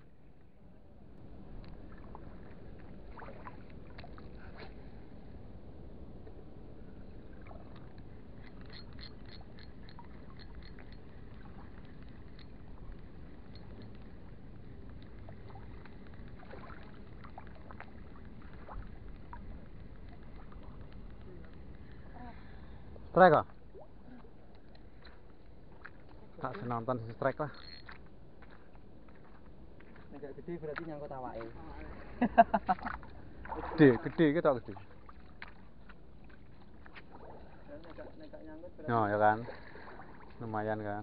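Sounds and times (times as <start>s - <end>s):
wind: 0.0s - 41.0s
water rushing: 1.2s - 5.1s, 6.4s - 22.2s, 29.2s - 41.0s.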